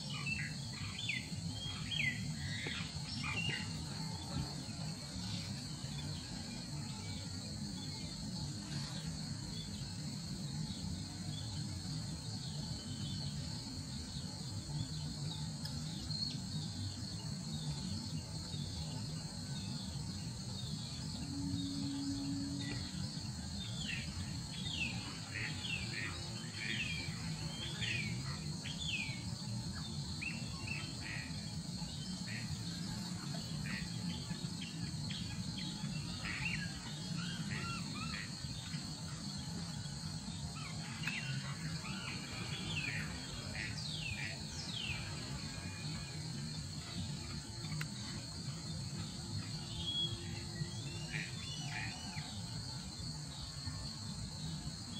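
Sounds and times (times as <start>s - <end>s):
high-pitched insect drone: 0.0s - 54.9s.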